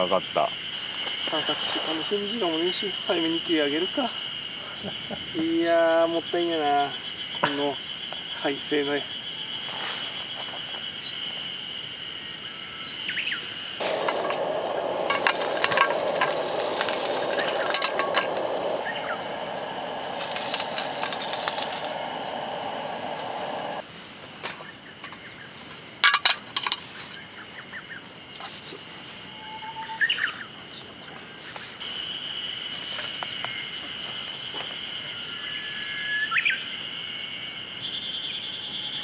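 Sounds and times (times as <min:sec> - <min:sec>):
steady rushing noise: 0:13.8 - 0:23.9.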